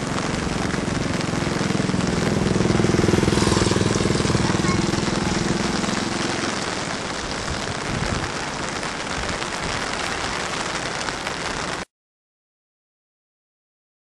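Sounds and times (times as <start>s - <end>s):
vehicle engine hum: 0.0s - 7.9s
rain falling: 0.0s - 11.9s.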